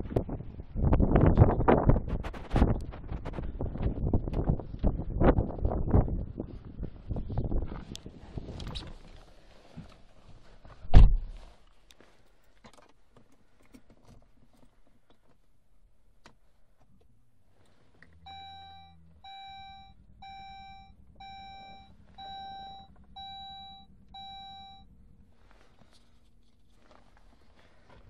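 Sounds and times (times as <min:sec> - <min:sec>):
low steady hum: 0:16.8 - 0:28.0
car warning chime beeping: 0:18.2 - 0:25.0.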